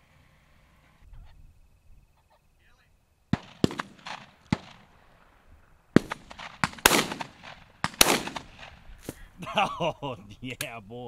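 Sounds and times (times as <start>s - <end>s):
shotgun shots with echo: 3.3s - 4.9s, 6.0s - 8.8s.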